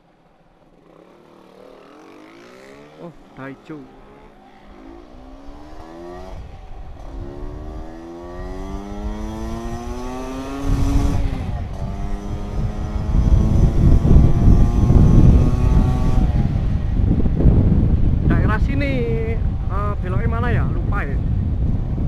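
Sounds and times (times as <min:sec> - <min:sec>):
scooter engine accelerating: 0:00.0 - 0:19.8
wind rushing over microphone: 0:05.1 - 0:22.0.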